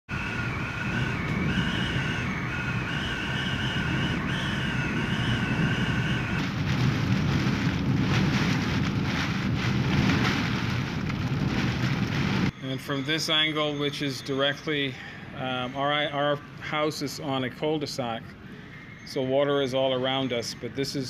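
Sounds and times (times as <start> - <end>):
driving rain: 0.1 - 12.9
wind roaring: 0.1 - 13.9
high wind whistle: 0.1 - 17.1.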